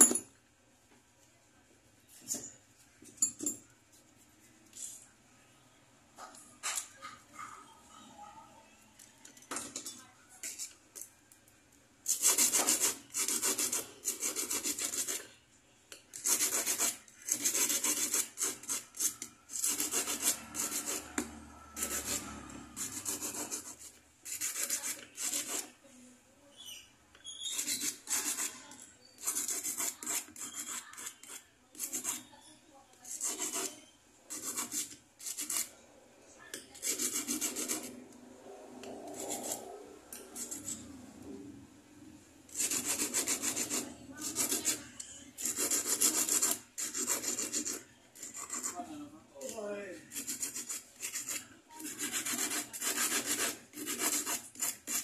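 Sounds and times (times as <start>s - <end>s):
hand file rasping on metal: 12.1s - 15.2s, 16.1s - 25.8s, 27.4s - 32.4s, 33.0s - 35.8s, 36.7s - 38.0s, 38.8s - 40.9s, 42.5s - 48.9s, 50.1s - 55.0s.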